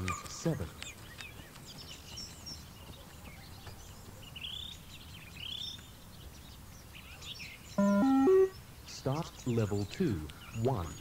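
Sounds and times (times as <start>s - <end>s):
birds chirping: 0.0s - 11.0s
electronic tones stepping up: 7.8s - 8.6s.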